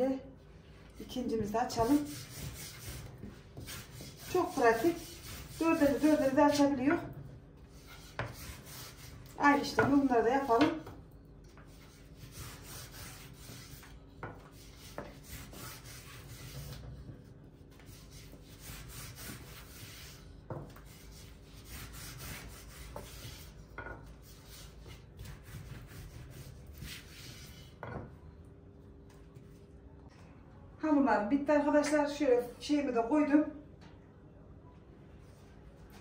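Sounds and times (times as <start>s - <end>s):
rolling pin rubbing dough: 1.0s - 10.9s, 11.5s - 27.8s.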